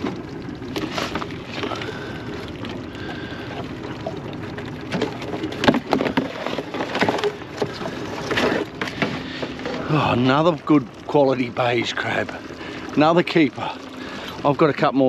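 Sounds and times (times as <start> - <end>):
boat noise: 0.0 - 15.0
water washing: 0.0 - 15.0.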